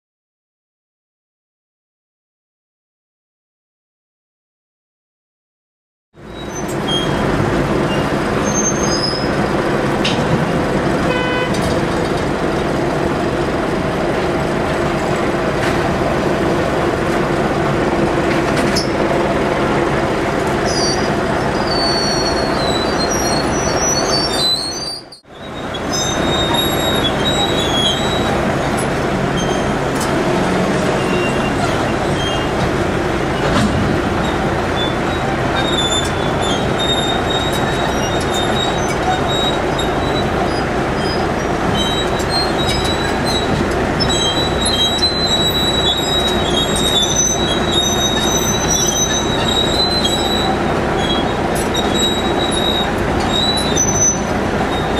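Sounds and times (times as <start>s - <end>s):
high metallic squeals: 6.2s - 9.7s, 20.6s - 54.9s
tracked tractor diesel engine: 6.2s - 54.9s.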